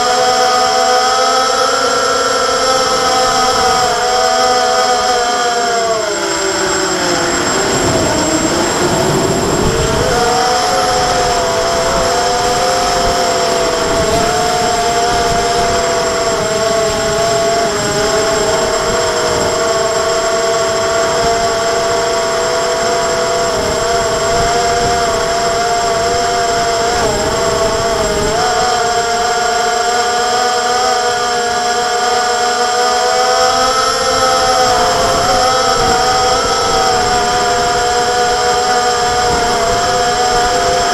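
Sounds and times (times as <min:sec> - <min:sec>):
drone motors whining: 0:00.0 - 0:40.9
rushing air noise: 0:02.9 - 0:30.2.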